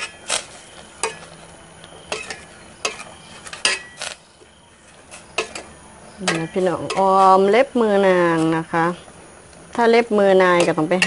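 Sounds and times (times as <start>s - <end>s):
utensil scraping metal pot: 0.0s - 4.2s, 4.8s - 8.8s.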